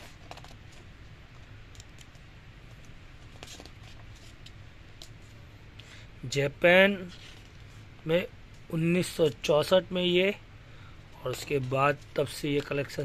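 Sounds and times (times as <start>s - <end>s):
paper rustles and clicks: 0.0s - 0.9s
low background hum: 0.0s - 13.0s.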